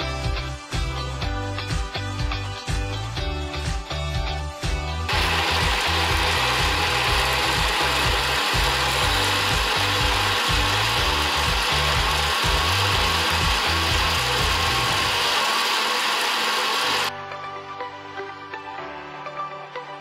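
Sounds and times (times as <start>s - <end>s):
background music with bass line: 0.0s - 20.0s
blender running: 5.1s - 17.1s.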